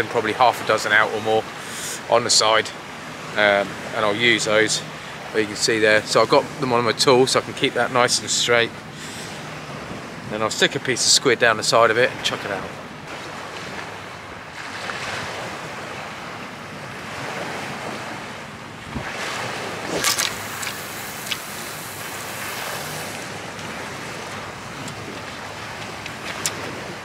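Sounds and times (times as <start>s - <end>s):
waves washing against shore: 0.0s - 27.0s
wind on microphone: 14.6s - 27.0s
fishing rod swish: 19.0s - 23.3s.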